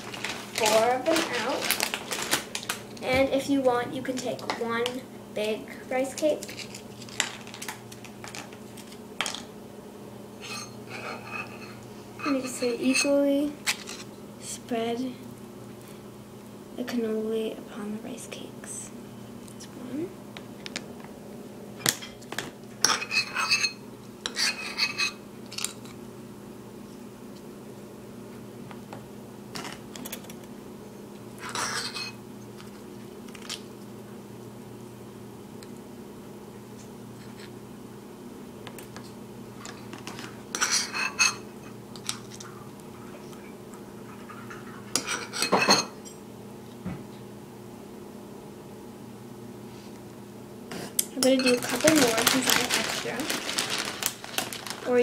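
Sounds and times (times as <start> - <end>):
metal spoon scraping ceramic bowl: 10.4 - 13.2
spoon scraping ceramic bowl: 10.4 - 14.1, 22.9 - 25.2.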